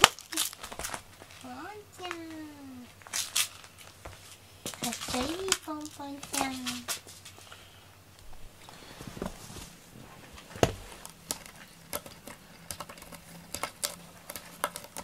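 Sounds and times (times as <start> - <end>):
cat scratching cardboard: 8.8 - 15.0.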